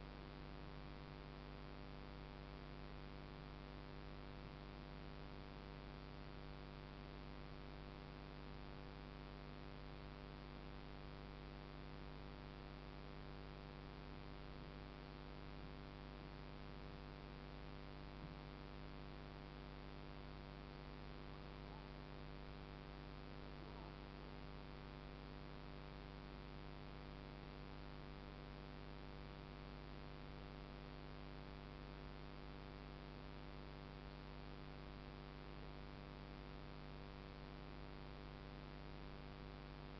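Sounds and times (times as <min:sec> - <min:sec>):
electrical hum with hiss: 0:00.0 - 0:39.9.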